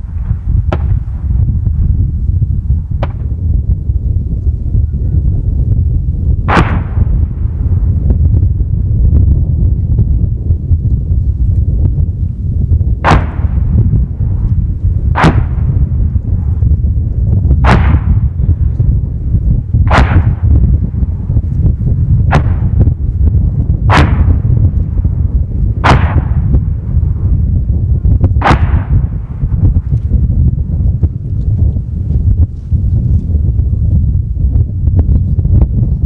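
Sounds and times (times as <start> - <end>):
heavy weapons firing with echo: 0.0 - 1.6, 6.4 - 8.0, 13.0 - 14.4, 15.1 - 16.8, 17.6 - 19.0, 19.7 - 21.5, 22.1 - 27.4, 28.3 - 29.9
wind rumble on microphone: 0.0 - 36.0.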